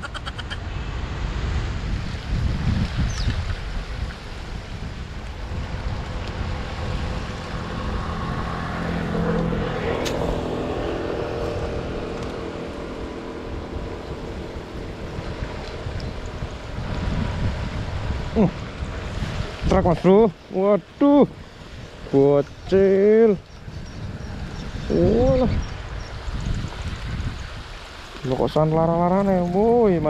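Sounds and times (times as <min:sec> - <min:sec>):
road traffic: 0:00.0 - 0:26.3
wind on microphone: 0:00.0 - 0:30.0
vehicle engine passing: 0:05.4 - 0:20.8.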